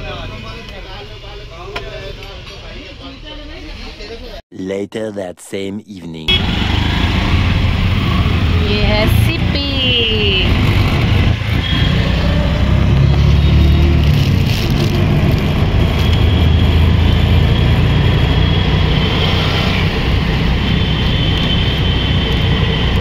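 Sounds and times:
road and traffic rumble: 0.0s - 4.4s, 6.2s - 23.0s
auto-rickshaw engine running: 6.3s - 23.0s.

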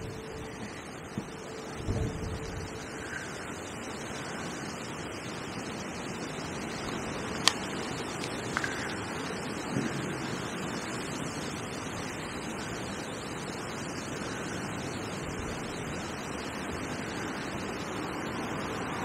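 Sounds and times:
strong wind rushing: 0.0s - 12.4s
river water flowing: 0.0s - 19.0s.

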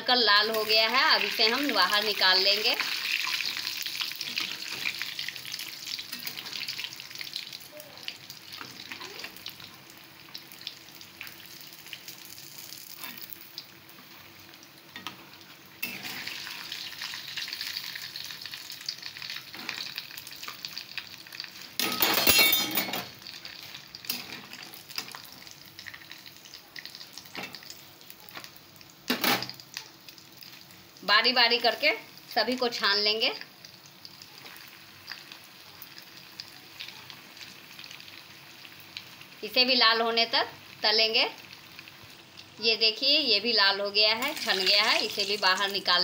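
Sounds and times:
food deep-frying in oil: 0.0s - 46.0s
metal spatula scraping pan: 15.8s - 16.4s.

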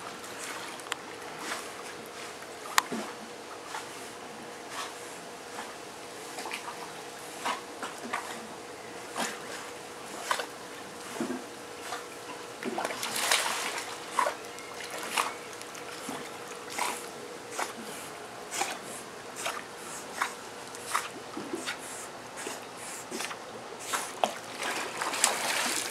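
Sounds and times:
dogs splashing in water: 9.1s - 18.0s, 18.6s - 25.9s.

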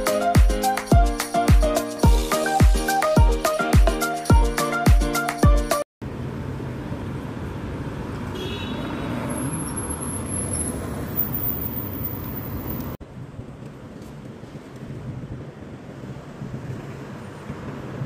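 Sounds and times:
music with pulsing beat: 0.0s - 5.8s
cars driving past: 6.0s - 13.0s.

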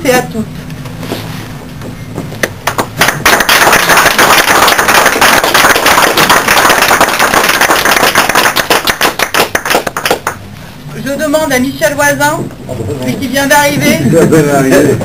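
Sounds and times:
people applauding: 2.6s - 10.4s.

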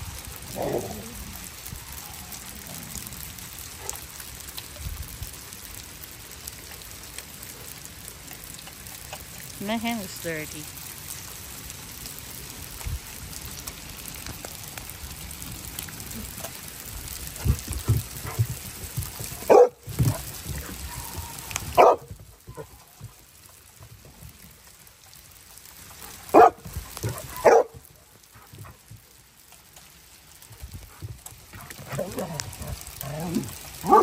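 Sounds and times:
hail falling on wooden deck: 0.0s - 34.0s
dog barking: 19.5s - 20.2s, 20.9s - 22.1s, 26.3s - 27.8s.

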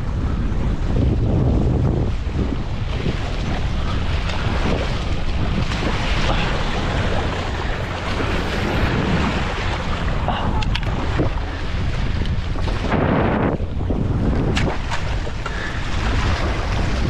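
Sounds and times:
wind buffeting microphone: 0.0s - 17.0s
waves splashing over rocks: 2.9s - 13.5s, 14.3s - 17.0s.

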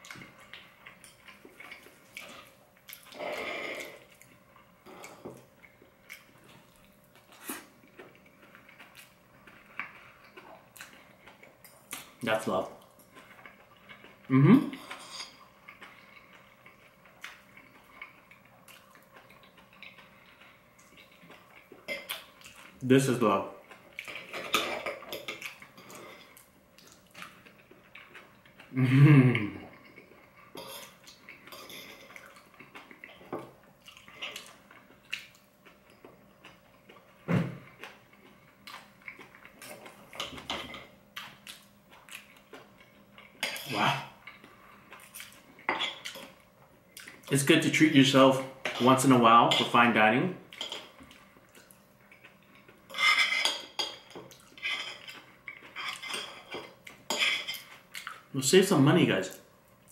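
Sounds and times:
chewing and lip smacks: 0.0s - 3.2s, 15.6s - 22.8s, 25.1s - 28.7s, 29.7s - 37.1s, 37.7s - 40.4s, 41.2s - 43.6s, 44.2s - 47.4s, 54.2s - 58.3s
cutlery scraping on ceramic plate: 52.9s - 57.7s.

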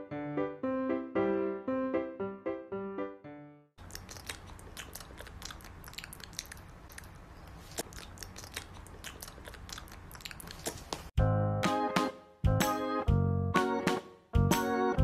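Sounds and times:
puppies gnawing with clicks: 3.8s - 11.1s.

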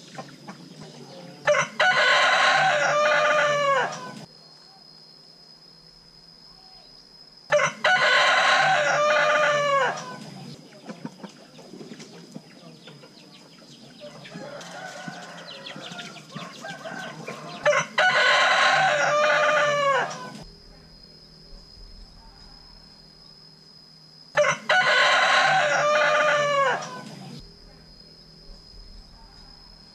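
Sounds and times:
rooster crowing: 1.1s - 4.3s, 7.5s - 10.4s, 14.0s - 20.4s, 24.3s - 27.3s.

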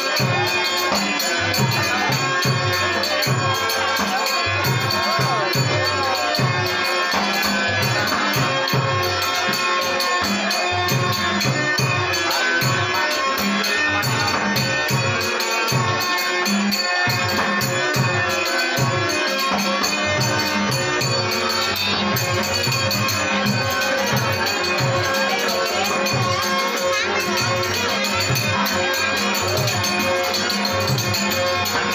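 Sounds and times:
drum beating quick rhythm: 0.0s - 31.9s
harmonium melody: 0.0s - 31.9s
small hand cymbals ticking: 13.2s - 31.9s.

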